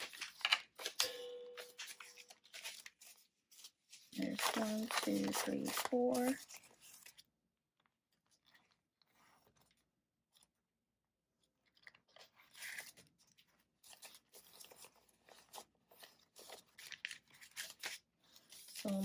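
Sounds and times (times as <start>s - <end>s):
paper banknotes rustling: 0.0s - 7.3s, 12.1s - 19.0s
plastic envelope being handled: 0.0s - 7.3s, 12.1s - 19.0s.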